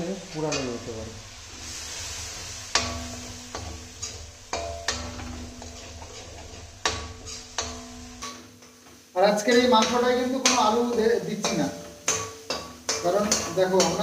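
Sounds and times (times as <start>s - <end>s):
soft sizzle: 0.0s - 14.0s
ladle scraping pan: 0.5s - 8.8s
ladle knocking metal pan: 2.7s - 8.5s.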